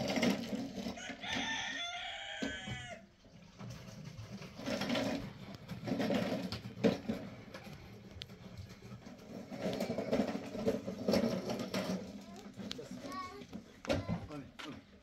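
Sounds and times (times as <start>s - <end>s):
rooster crowing: 0.9s - 3.1s.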